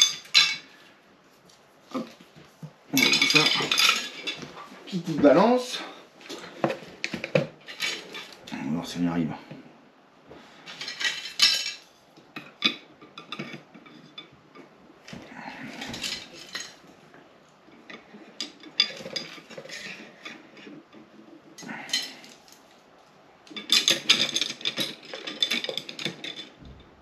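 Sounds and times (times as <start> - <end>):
dense clatter: 3.0 - 5.2.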